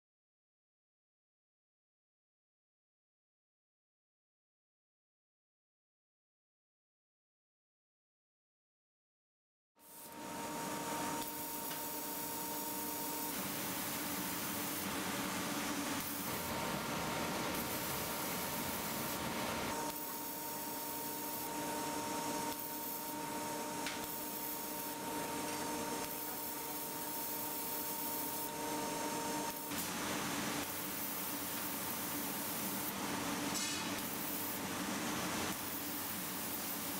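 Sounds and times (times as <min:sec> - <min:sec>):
machine hum: 0:09.9 - 0:30.7
plasma torch hissing: 0:11.0 - 0:23.2, 0:23.8 - 0:28.6, 0:29.5 - 0:36.9.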